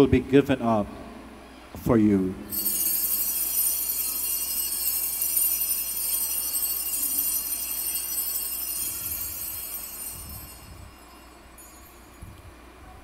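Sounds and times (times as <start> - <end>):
small bells jingling: 2.5 - 12.7.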